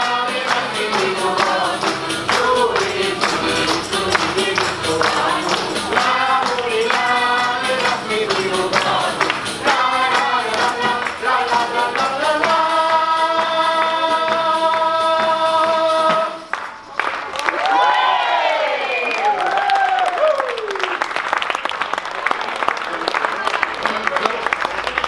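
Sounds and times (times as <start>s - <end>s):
people singing: 0.0s - 16.6s
accordion: 0.0s - 16.8s
quick percussion beat: 0.0s - 16.9s.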